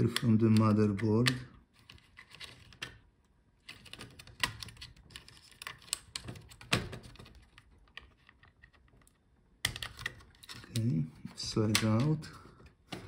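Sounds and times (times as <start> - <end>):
plastic clicks and scrapes: 0.0 - 13.0.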